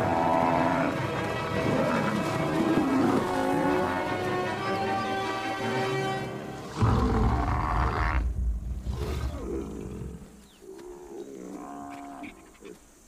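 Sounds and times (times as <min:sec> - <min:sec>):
lions growling and snarling: 0:06.7 - 0:12.8.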